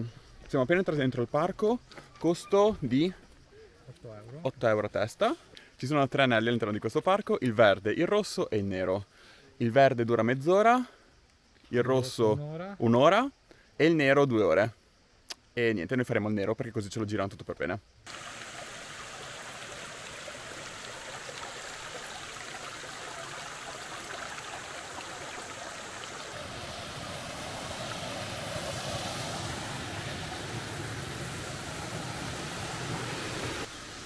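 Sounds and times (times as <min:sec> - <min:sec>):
stream rushing over stones: 0:18.1 - 0:34.0.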